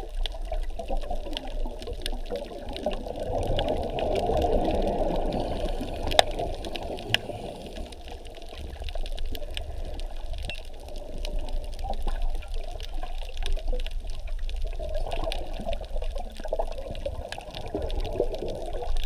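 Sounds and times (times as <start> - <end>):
water splashing and sloshing: 0.0 - 19.0
small clicks: 5.0 - 12.1.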